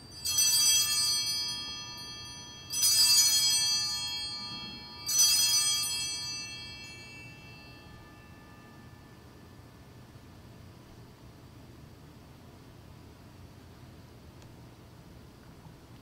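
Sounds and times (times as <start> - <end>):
altar bells ringing: 0.0 - 9.8.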